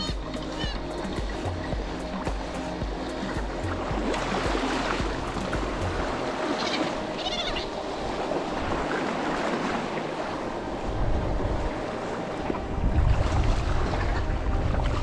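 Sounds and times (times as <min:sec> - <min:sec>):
seagull calls: 0:00.0 - 0:01.7, 0:06.4 - 0:07.9
wind buffeting microphone: 0:07.4 - 0:15.0.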